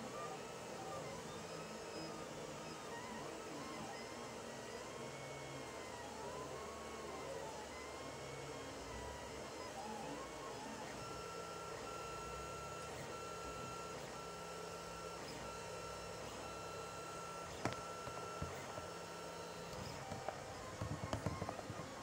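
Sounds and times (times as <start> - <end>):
printer stepper motors whining: 0.0 - 22.0.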